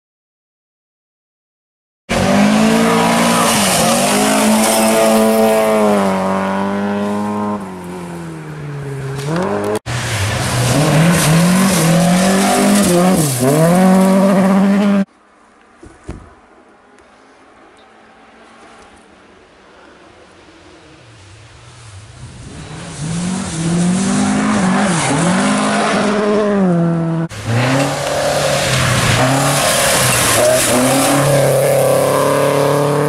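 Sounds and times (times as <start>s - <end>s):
rally car engine revving: 2.1s - 8.4s, 9.0s - 15.1s, 21.7s - 33.0s
faint outdoor ambience: 2.4s - 33.0s.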